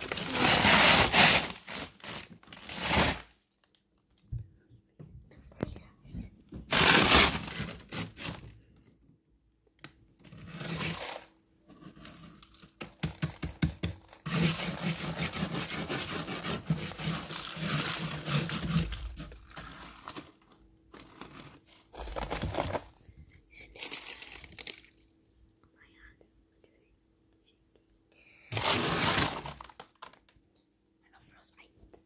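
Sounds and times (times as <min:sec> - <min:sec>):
hands scraping frost and ice: 0:00.0 - 0:01.9, 0:28.5 - 0:29.8
crinkly rustling: 0:00.0 - 0:03.8, 0:10.2 - 0:12.8, 0:14.0 - 0:25.1, 0:28.6 - 0:30.3.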